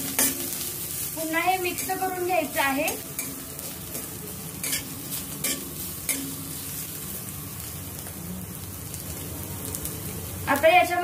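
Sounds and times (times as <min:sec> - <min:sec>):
spices sizzling in hot oil: 0:00.0 - 0:11.0.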